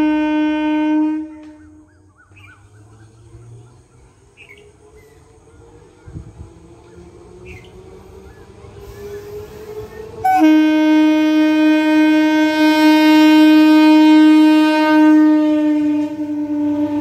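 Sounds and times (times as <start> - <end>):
train horn long blast: 0.0 - 1.9, 8.9 - 17.0.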